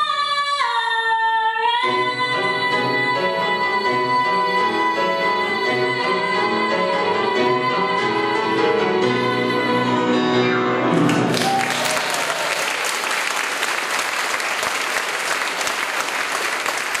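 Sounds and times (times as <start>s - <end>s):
woman singing: 0.0s - 10.5s
grand piano: 1.8s - 13.7s
audience applause: 11.0s - 17.0s.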